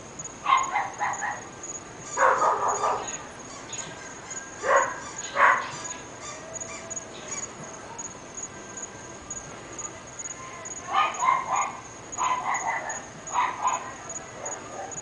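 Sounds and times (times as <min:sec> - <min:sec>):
dogs barking: 0:00.4 - 0:01.5, 0:02.1 - 0:03.2, 0:04.0 - 0:06.4, 0:10.8 - 0:15.0.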